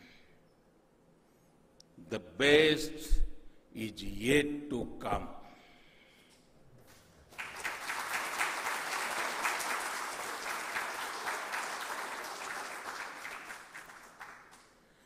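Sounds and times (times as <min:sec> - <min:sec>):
crowd applauding: 0:07.3 - 0:14.8.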